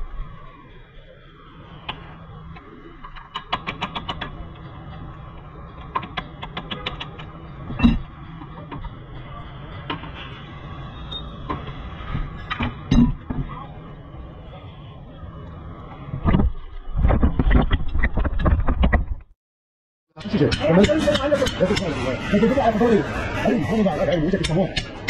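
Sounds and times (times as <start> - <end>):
steady low hum: 0.0 - 18.6, 20.2 - 25.0.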